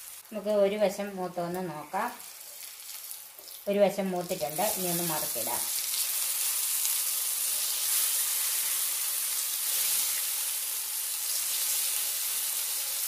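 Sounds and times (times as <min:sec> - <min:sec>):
vegetable slices sizzling in oil: 0:00.0 - 0:13.0
spatula and fork turning food: 0:04.2 - 0:13.0.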